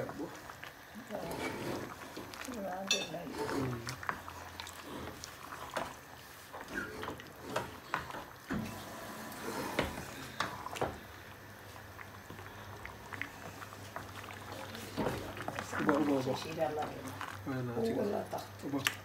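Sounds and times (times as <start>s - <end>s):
wooden spoon scraping a pot: 1.0s - 10.8s.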